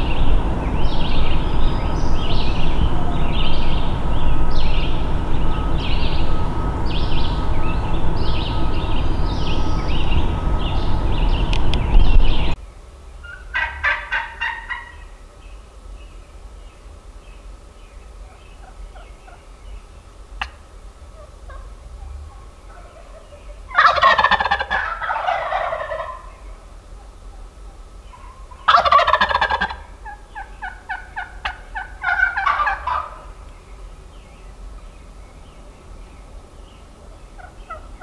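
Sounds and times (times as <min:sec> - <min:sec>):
turkey gobbling: 0:00.0 - 0:11.3, 0:13.2 - 0:15.2, 0:18.2 - 0:19.6, 0:20.4 - 0:33.5, 0:37.0 - 0:38.0
steady rushing noise: 0:00.0 - 0:24.8
songbirds chirping: 0:00.0 - 0:38.0.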